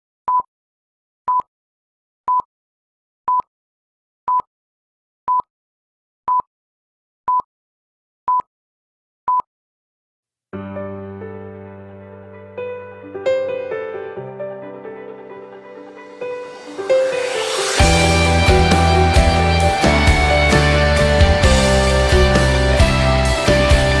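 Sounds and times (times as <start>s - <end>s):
soft music: 10.6s - 24.0s.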